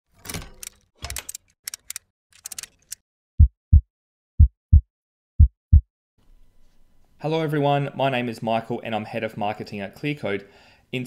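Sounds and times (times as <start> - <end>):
heartbeat-style double thumps: 3.4 - 5.9.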